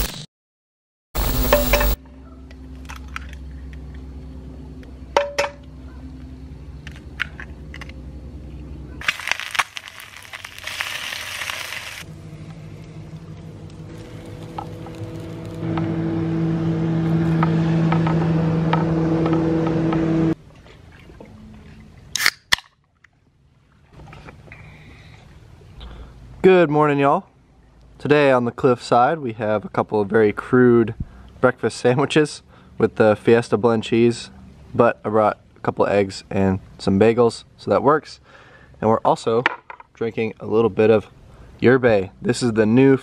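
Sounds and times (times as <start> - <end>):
hissing sizzle: 1.2 - 2.0, 9.0 - 12.1, 13.7 - 15.7
eggs cracked into a pan: 9.0 - 11.9
portable stove humming: 10.7 - 20.4
drink can snapping open: 22.2 - 22.8.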